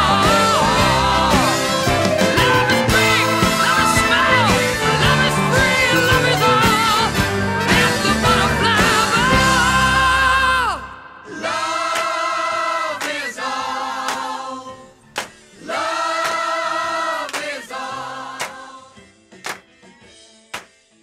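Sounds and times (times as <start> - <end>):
loud music: 0.0 - 13.2
choir singing held notes: 11.2 - 19.0.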